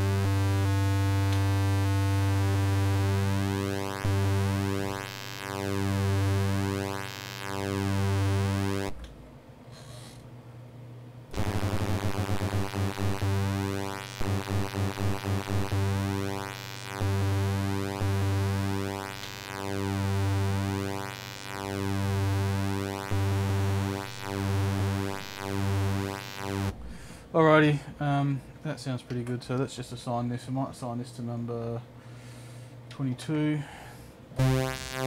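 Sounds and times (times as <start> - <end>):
synthesizer low pulsing note: 0.0 - 9.0, 11.3 - 27.0, 34.4 - 35.0.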